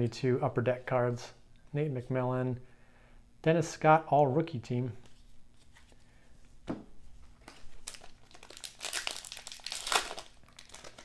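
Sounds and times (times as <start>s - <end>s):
plastic wrapper crinkling: 7.4s - 11.0s.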